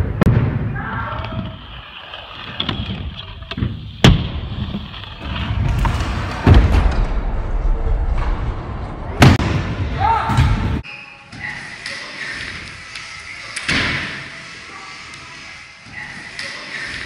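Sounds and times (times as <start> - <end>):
scooter wheels rolling on wood: 1.1 - 6.6.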